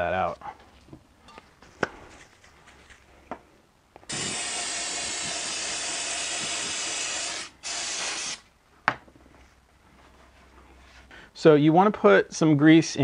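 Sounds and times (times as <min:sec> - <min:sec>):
aerosol spray hissing: 0:04.1 - 0:08.4.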